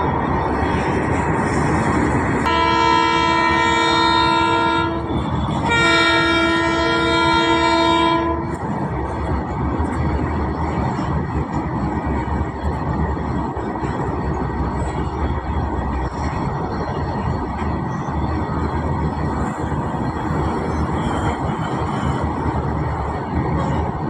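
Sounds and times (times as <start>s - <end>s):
freight train wagons rolling: 0.0s - 24.0s
multi-tone locomotive horn: 2.4s - 8.8s.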